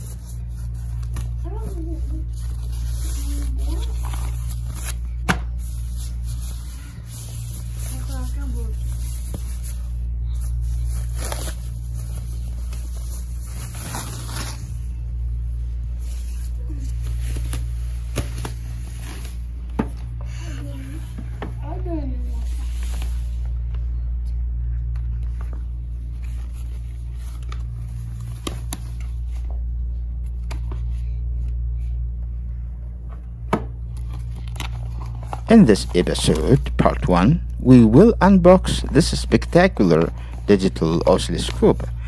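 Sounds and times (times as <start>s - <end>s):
plastic bags crinkling: 0.0s - 15.0s
plastic wrapping rustling: 0.0s - 21.0s, 33.8s - 37.0s
low hum: 0.0s - 42.0s.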